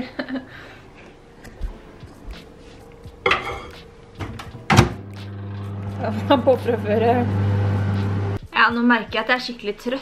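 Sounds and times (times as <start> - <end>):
dishes clattering: 3.2 - 4.9
microwave door click: 4.2 - 5.0.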